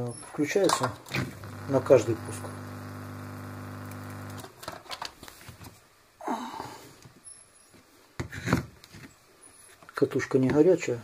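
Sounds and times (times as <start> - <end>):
drain pump motor humming: 1.0 - 4.5.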